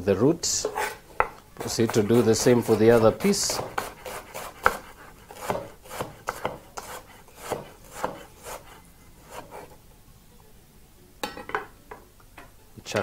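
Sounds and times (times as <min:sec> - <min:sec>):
knife cutting on wooden board: 0:00.6 - 0:09.7.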